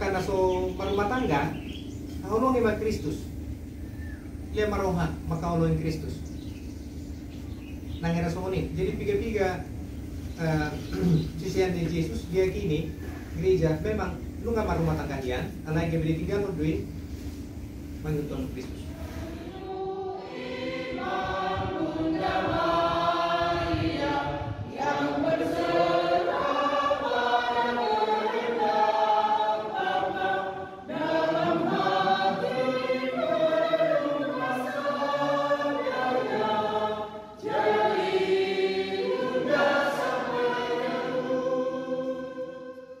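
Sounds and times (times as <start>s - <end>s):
choir singing a hymn: 18.9s - 43.0s.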